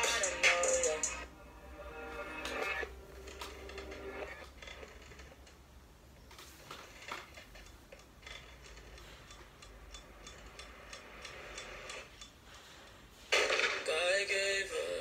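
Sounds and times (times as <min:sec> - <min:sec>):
pocket watch ticking: 0:07.6 - 0:13.0.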